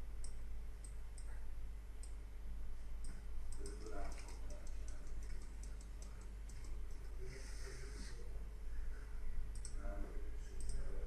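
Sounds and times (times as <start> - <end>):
low electrical hum: 0.0 - 11.0
computer mouse clicking: 0.2 - 1.4, 2.0 - 2.2, 3.0 - 7.0, 9.5 - 9.8, 10.6 - 10.9.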